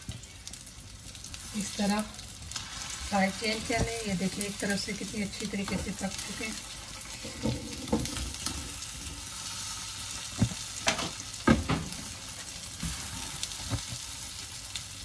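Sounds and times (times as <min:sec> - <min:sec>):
food sizzling in oil: 0:00.0 - 0:15.0
spatula knocking and scraping pan: 0:07.3 - 0:08.6.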